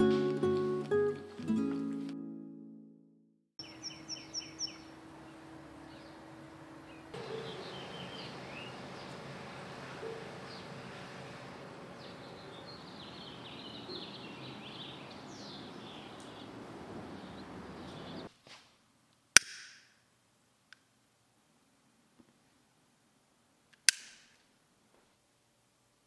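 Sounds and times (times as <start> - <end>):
small birds chirping: 3.6 - 18.3.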